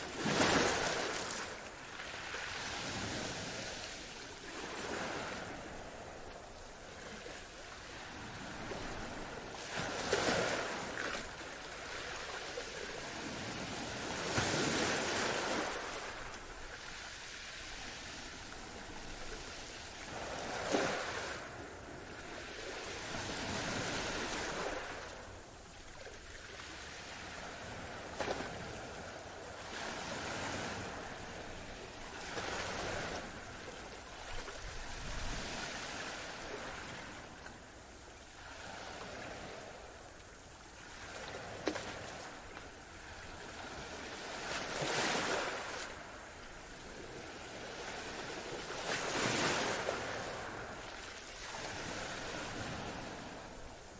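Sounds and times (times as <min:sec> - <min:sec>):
ocean waves breaking: 0:00.0 - 0:06.3.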